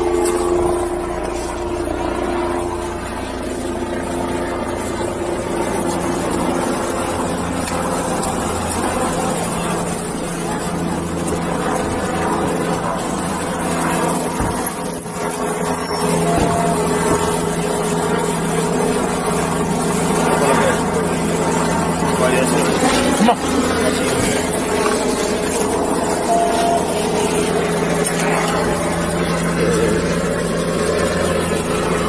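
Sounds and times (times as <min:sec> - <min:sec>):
mechanical drone: 0:00.0 - 0:32.0
thin high tone: 0:13.5 - 0:32.0.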